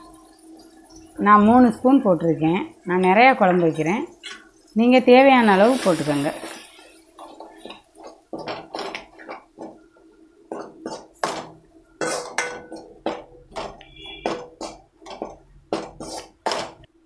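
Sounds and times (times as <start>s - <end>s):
ladle scraping and knocking pan: 6.6s - 16.9s.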